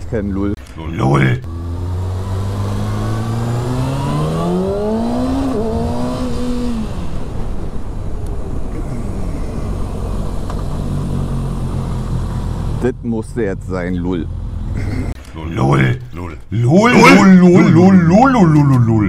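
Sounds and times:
road and wind noise: 0.0 - 19.0
motorcycle engine accelerating: 1.4 - 8.0.

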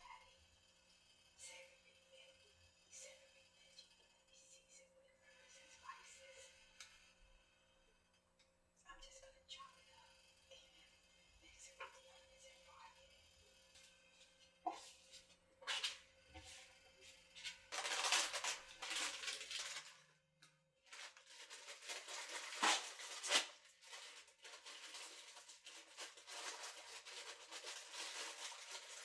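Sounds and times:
food crackling on a plate: 13.8 - 20.2.

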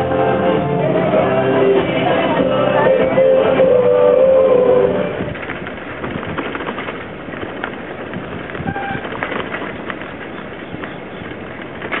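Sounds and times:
steady rustling: 4.8 - 12.0
birds chirping: 7.7 - 11.8.

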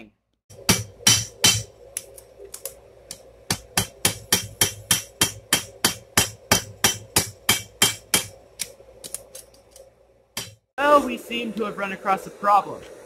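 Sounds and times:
hammer striking metal on anvil: 0.6 - 1.7, 3.5 - 8.3, 10.4 - 10.6.

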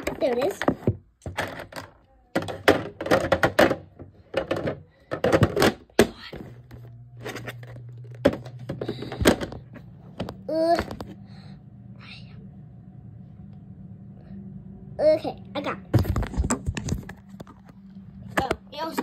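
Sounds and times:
objects knocking and thudding: 0.0 - 11.2, 15.9 - 19.0
steady low hum: 0.0 - 19.0.

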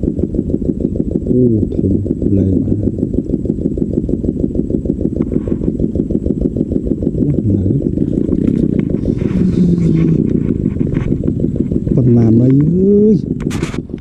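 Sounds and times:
small engine chugging: 0.0 - 14.0.

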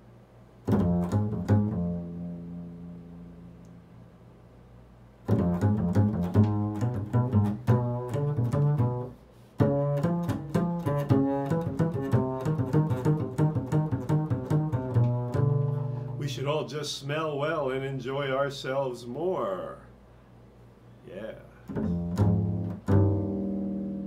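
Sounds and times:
double bass plucked notes: 0.6 - 4.3, 5.2 - 16.6, 21.7 - 24.0.

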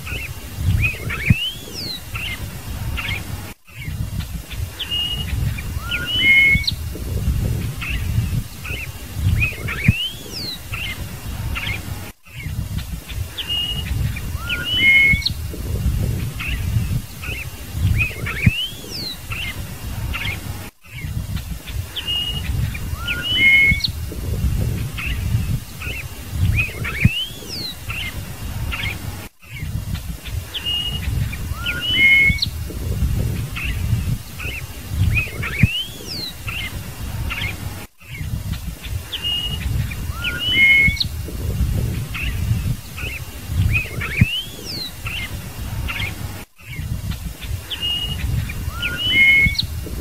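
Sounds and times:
blackbird singing whistles: 0.0 - 2.4, 4.7 - 11.0, 13.4 - 19.5, 21.9 - 28.1, 30.6 - 36.7, 39.1 - 45.3, 47.7 - 50.0.

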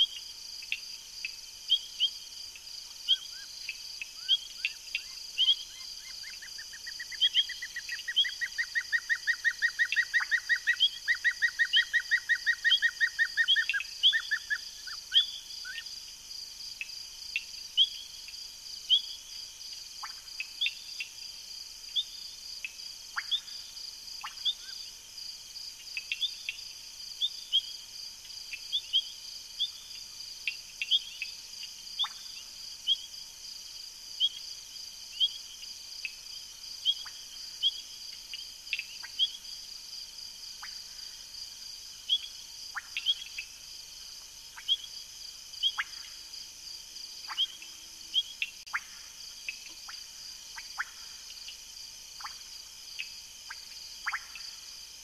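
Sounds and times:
frog chirps and falling calls: 4.1 - 15.8, 23.2 - 23.5, 42.1 - 43.5, 44.5 - 45.0, 45.6 - 46.2, 47.2 - 51.6, 52.2 - 54.7.

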